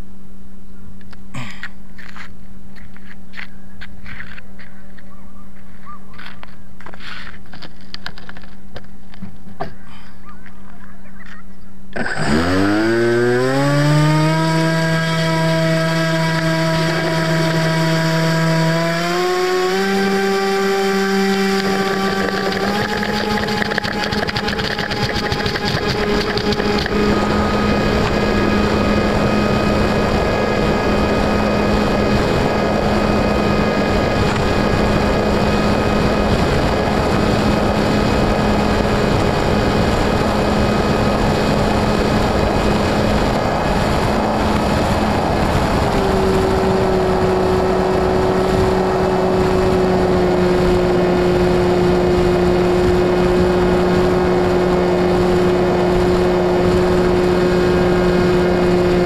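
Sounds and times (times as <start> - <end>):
electric motor and propeller whine: 11.9 - 59.0.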